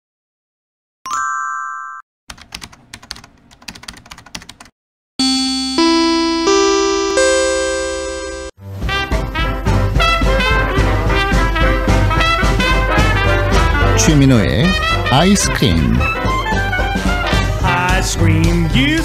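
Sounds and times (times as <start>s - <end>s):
keyboard typing clicks: 2.3s - 4.7s
held musical chord: 5.2s - 8.6s.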